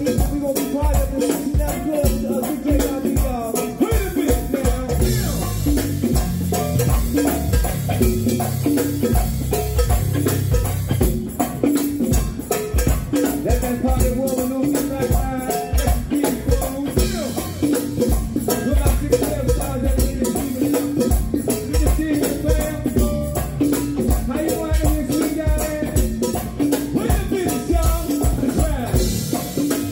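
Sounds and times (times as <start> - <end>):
lead vocal singing: 0.0 - 5.7, 13.4 - 17.7, 18.4 - 23.6, 24.2 - 29.3
drums and percussion: 0.0 - 29.9
electric guitar: 0.0 - 29.9.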